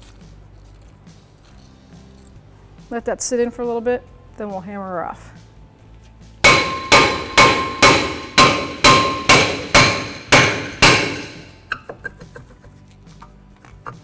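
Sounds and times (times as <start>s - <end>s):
hammer striking metal rotor: 6.4s - 11.7s.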